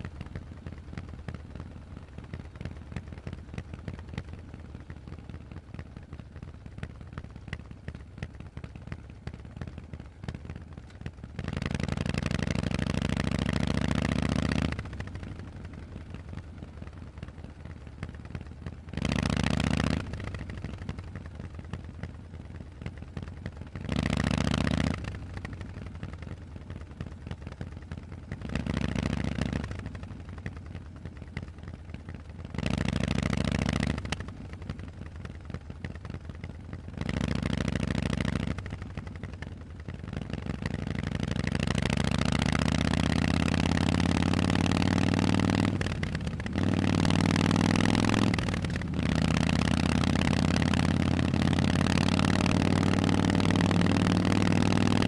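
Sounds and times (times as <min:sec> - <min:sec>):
motorcycle engine idling: 0:00.0 - 0:55.0
motorcycle accelerating away: 0:11.4 - 0:15.0, 0:18.9 - 0:20.5, 0:23.8 - 0:25.2, 0:28.4 - 0:29.8, 0:32.5 - 0:34.2, 0:37.0 - 0:38.8, 0:40.2 - 0:55.0.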